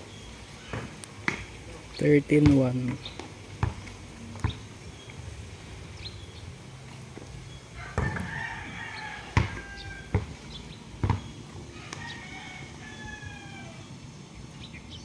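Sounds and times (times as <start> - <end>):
basketball bouncing thuds: 2.3 - 4.6, 7.9 - 8.4, 9.3 - 10.4, 11.0 - 11.4
rooster crowing: 7.8 - 10.3, 11.7 - 13.9.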